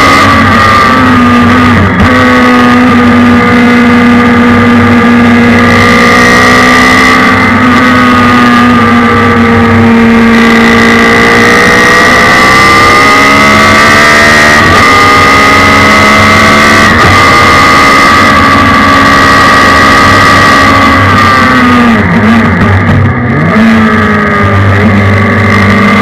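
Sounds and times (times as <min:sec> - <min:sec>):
race car engine at high revs: 0:00.0 - 0:26.0.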